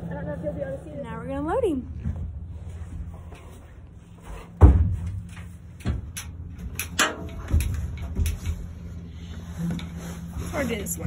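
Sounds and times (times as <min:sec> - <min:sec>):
metal trailer clanking: 0:04.2 - 0:11.0
metal trailer door banging: 0:04.6 - 0:08.0.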